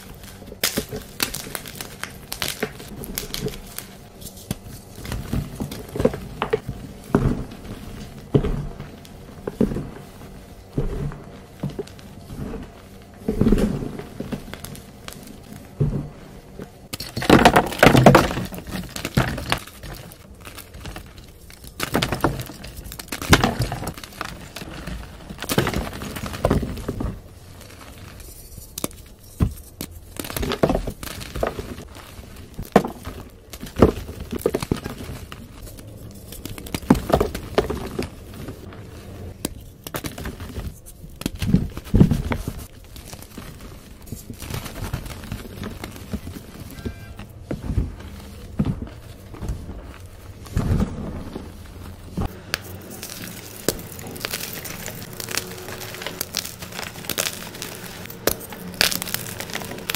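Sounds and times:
chalk being crushed by hand: 0.0s - 15.8s, 16.6s - 59.9s.

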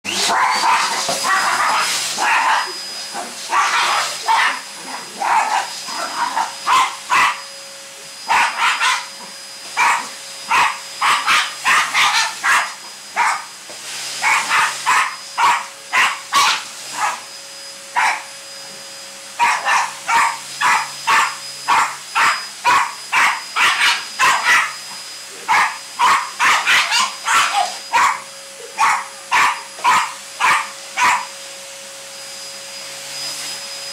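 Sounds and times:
vacuum cleaner motor whining: 0.1s - 33.9s
small dog barking: 0.2s - 2.8s, 3.5s - 7.4s, 8.3s - 9.1s, 9.8s - 13.5s, 14.2s - 17.2s, 18.0s - 18.3s, 19.4s - 24.8s, 25.5s - 31.3s.

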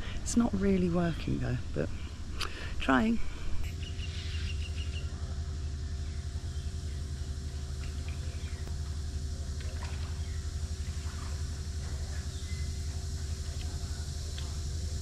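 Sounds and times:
machine engine rumbling: 0.0s - 15.0s.

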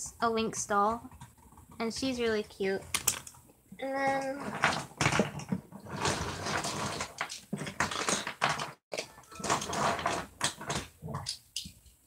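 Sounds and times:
plastic toys rummaged clicking: 2.9s - 3.4s, 4.1s - 11.4s.

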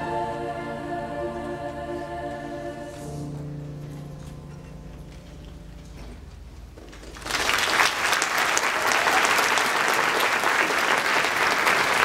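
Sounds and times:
choir singing: 0.0s - 3.8s
audience applause: 6.9s - 12.0s.

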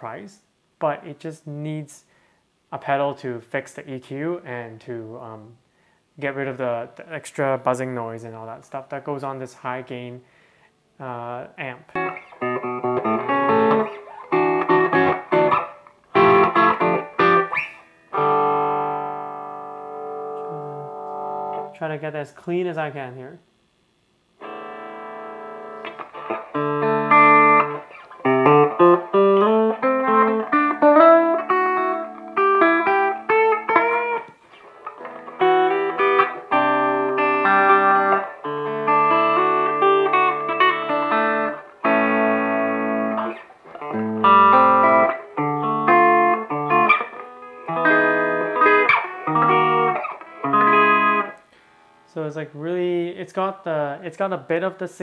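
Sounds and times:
clean electric guitar: 11.0s - 22.0s, 24.3s - 52.8s.

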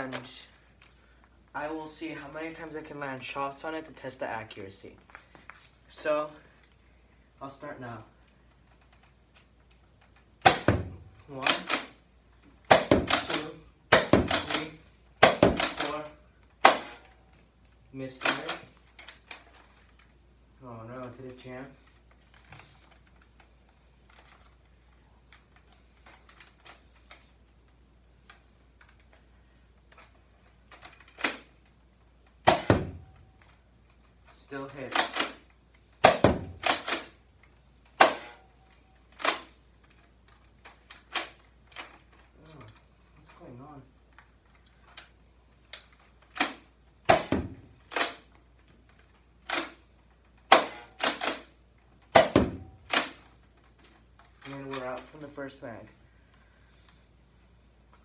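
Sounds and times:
plastic toy blaster clicks and rattles: 21.0s - 27.3s.

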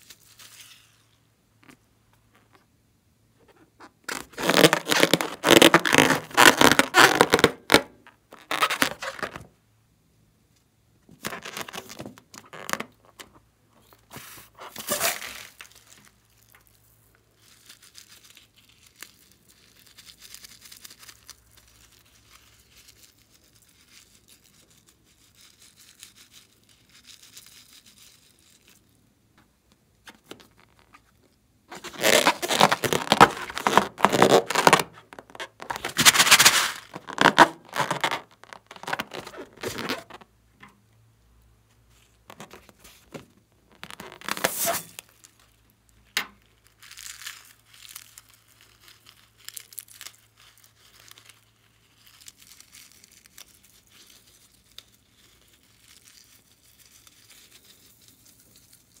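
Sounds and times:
balloons crinkling: 0.0s - 2.6s, 3.4s - 9.5s, 11.1s - 29.0s, 30.0s - 40.3s, 41.8s - 59.0s
slime squishing: 3.6s - 9.4s, 30.2s - 40.2s.

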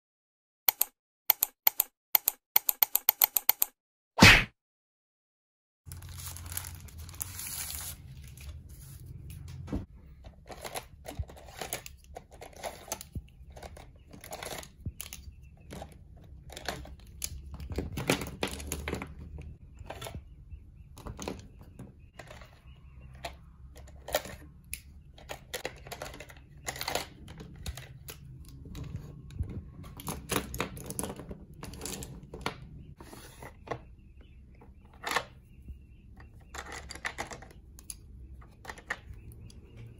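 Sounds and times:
plastic packaging crinkling: 5.9s - 8.4s.

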